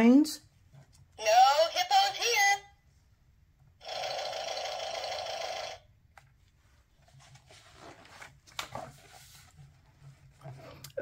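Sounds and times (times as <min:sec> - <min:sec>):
page turning rustle: 0:06.4 - 0:10.8.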